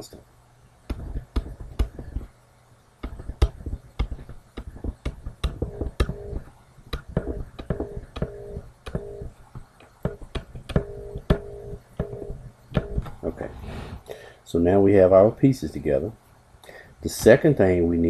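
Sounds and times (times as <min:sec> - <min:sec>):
stylus tapping on pen tablet: 0:00.9 - 0:02.3, 0:03.0 - 0:13.3.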